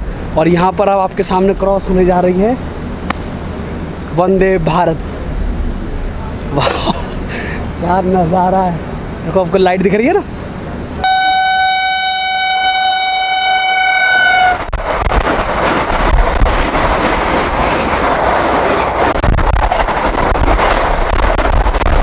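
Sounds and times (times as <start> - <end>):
train coaches rushing past: 0.0 - 22.0
train horn blast: 11.0 - 14.7.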